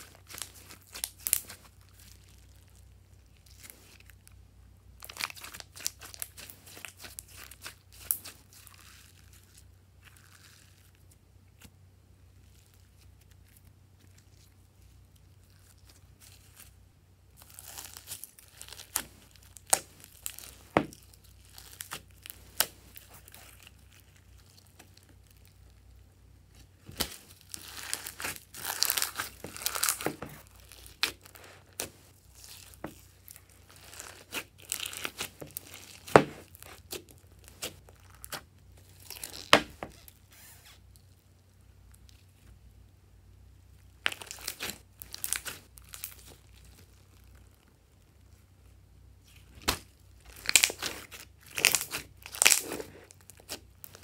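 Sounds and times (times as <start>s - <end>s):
slime squelching and popping: 0.0s - 2.7s, 5.0s - 9.2s, 26.8s - 40.1s, 44.0s - 47.6s, 49.3s - 54.0s.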